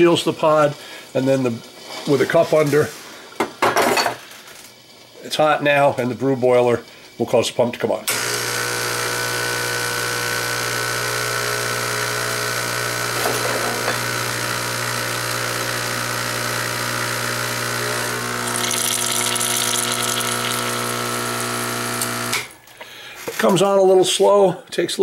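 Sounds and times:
water pump humming: 0:08.1 - 0:22.6.

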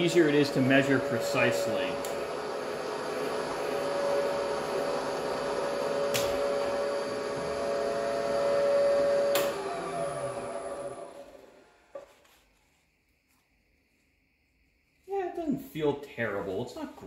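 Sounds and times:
milling machine motor hum: 0:00.0 - 0:11.6.

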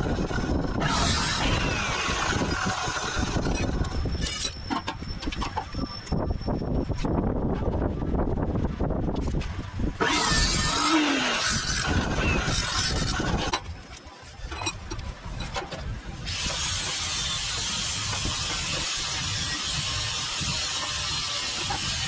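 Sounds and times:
cut-off saw grinding steel: 0:00.0 - 0:05.0, 0:10.0 - 0:13.7, 0:16.2 - 0:22.0.

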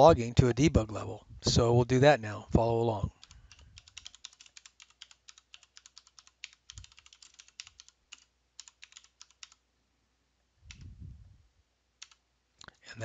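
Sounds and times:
faint keyboard typing: 0:02.6 - 0:09.6, 0:10.6 - 0:11.0, 0:12.0 - 0:12.8
soft low sound: 0:10.6 - 0:11.6.

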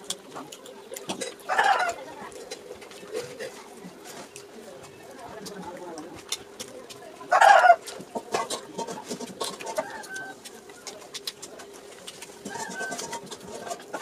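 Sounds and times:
chewing: 0:00.0 - 0:14.0.

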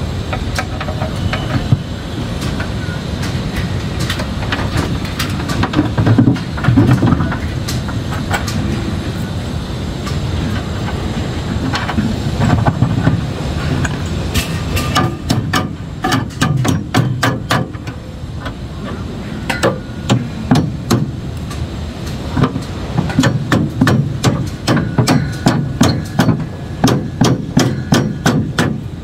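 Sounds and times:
steady low rumble: 0:00.0 - 0:29.0
hammer striking steel formwork: 0:11.7 - 0:29.0.

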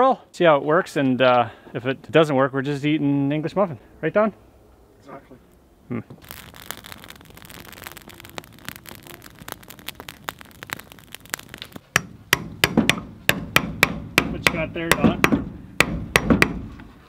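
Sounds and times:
small clicks patter: 0:06.2 - 0:11.9
hammer striking chisel: 0:11.9 - 0:16.7.

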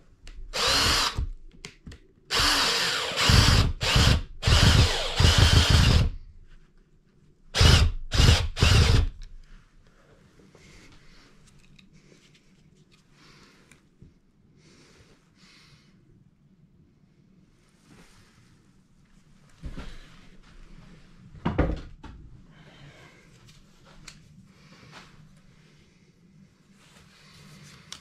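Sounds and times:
cordless drill driving into wood: 0:00.6 - 0:01.4, 0:02.3 - 0:06.2, 0:07.6 - 0:09.2.

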